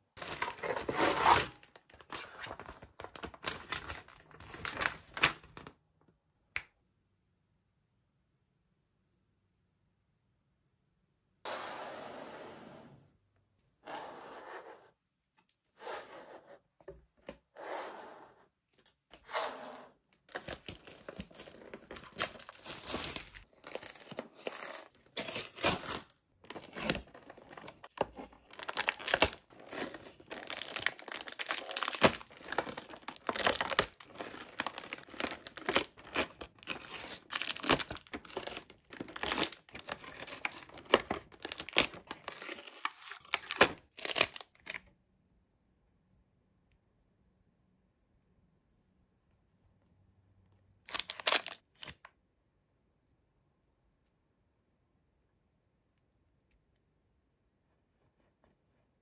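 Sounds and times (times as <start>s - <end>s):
packaging tearing and crinkling: 20.3s - 44.8s, 50.9s - 52.0s.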